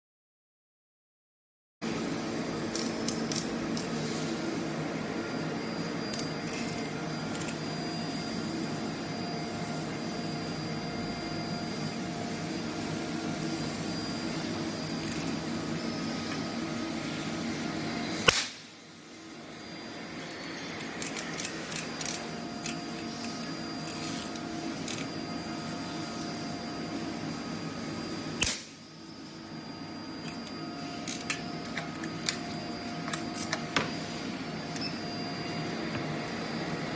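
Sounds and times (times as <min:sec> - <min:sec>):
steady machine hum: 0:01.8 - 0:36.9
nail welder sharp cracks: 0:18.2 - 0:18.7, 0:28.4 - 0:28.8.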